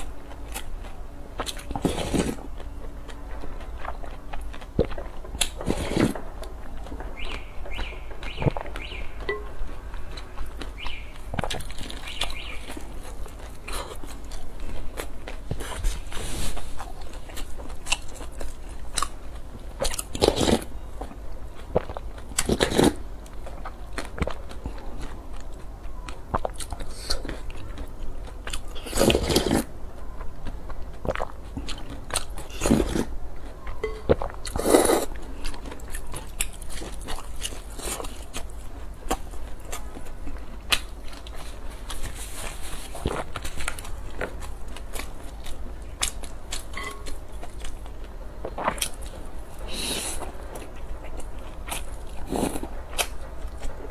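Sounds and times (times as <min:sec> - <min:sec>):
biting and chewing crispy food: 0:00.0 - 0:53.9.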